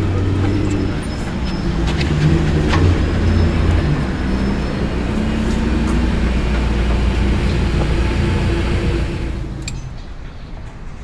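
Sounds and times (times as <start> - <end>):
car engine idling: 0.0 - 9.8.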